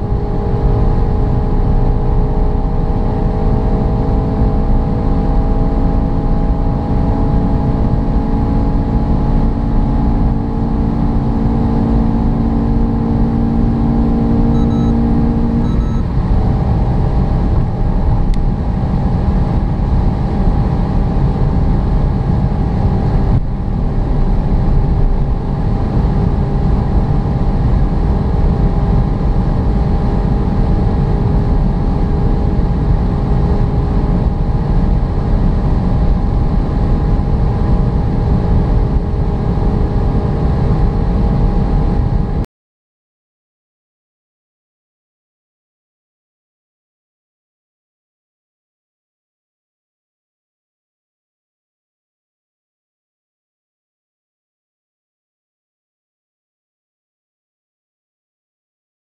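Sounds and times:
car engine at full throttle: 0:00.0 - 0:42.4
wind and road noise: 0:00.0 - 0:42.5.

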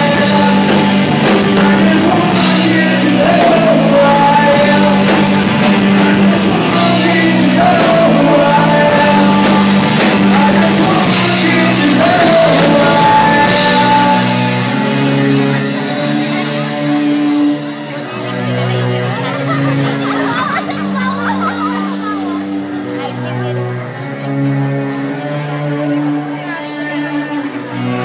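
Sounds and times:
lead singer singing: 0:00.0 - 0:18.0
bass guitar: 0:00.0 - 0:28.0
drums: 0:00.0 - 0:28.0
electric guitars: 0:00.0 - 0:28.0.

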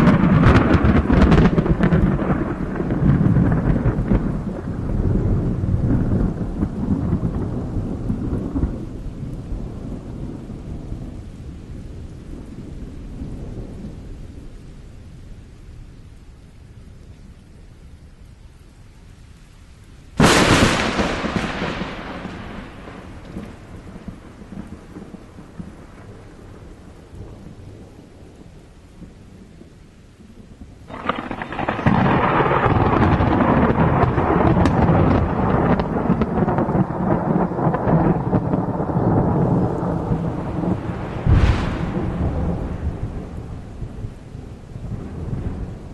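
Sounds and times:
sharp thunderclap: 0:00.0 - 0:08.9, 0:20.2 - 0:26.7, 0:30.9 - 0:45.9
thunder rumbling: 0:00.0 - 0:15.2, 0:20.2 - 0:45.9.

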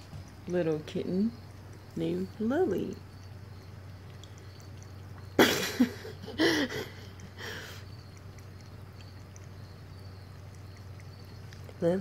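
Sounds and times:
kitten lapping water: 0:00.0 - 0:12.0
throaty cough-like vocal sounds: 0:05.4 - 0:06.9.

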